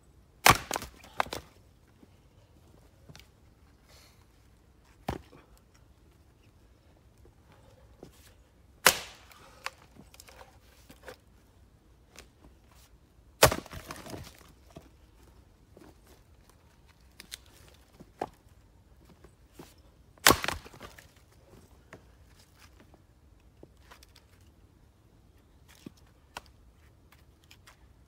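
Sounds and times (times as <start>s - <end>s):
axe striking wood: 0.4s - 1.4s, 8.8s - 9.4s, 13.4s - 14.2s, 20.2s - 20.9s
wood cracking: 0.4s - 1.4s, 8.8s - 10.5s, 13.4s - 14.5s, 20.2s - 21.2s.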